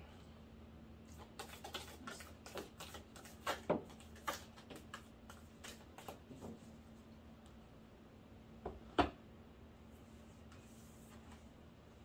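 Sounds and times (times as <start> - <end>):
cards shuffled by hand: 1.1 - 6.2.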